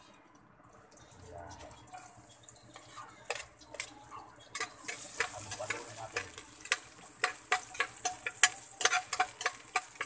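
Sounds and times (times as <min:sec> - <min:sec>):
frying sizzle: 0:00.0 - 0:10.0
metal spoon clicking on pot: 0:04.6 - 0:10.0.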